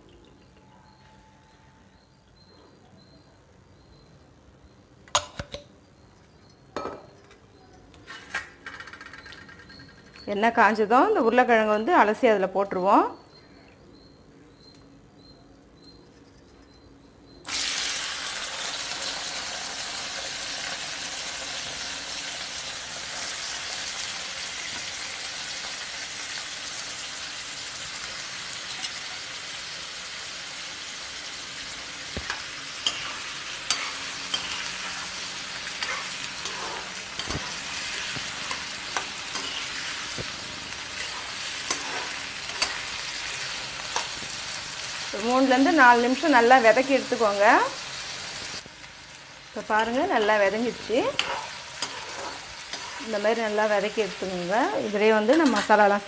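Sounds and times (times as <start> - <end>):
potatoes sizzling in hot oil: 17.5 - 56.0
metal ladle scraping pan: 32.2 - 43.1, 51.1 - 53.2, 55.2 - 55.8.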